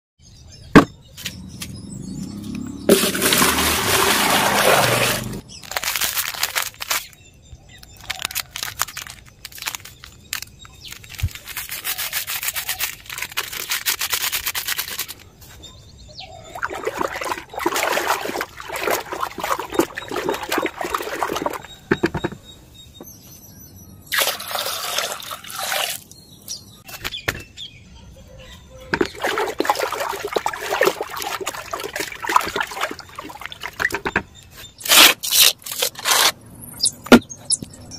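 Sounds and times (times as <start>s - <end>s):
liquid sloshing in plastic bucket: 2.9s - 5.4s, 16.4s - 22.4s, 28.9s - 34.3s.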